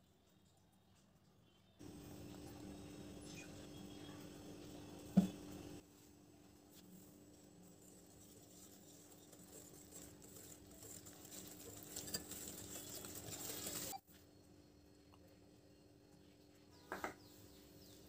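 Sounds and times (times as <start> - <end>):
whisk swishing in bowl: 7.1 - 14.0.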